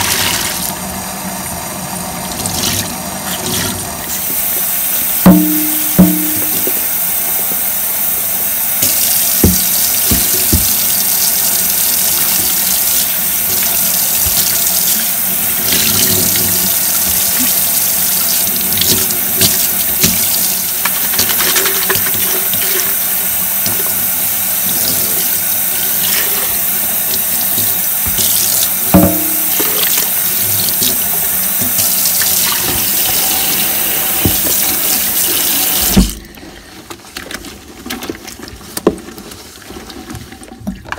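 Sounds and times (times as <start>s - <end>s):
tap water splashing into sink: 5.2s - 6.9s, 8.8s - 11.4s, 27.1s - 31.0s, 31.6s - 36.2s.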